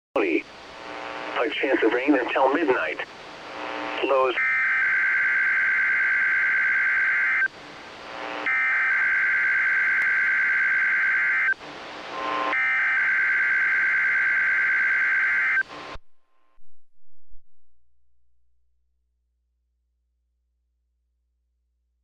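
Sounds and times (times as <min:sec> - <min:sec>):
radio receiver hiss: 0:00.2 - 0:04.4.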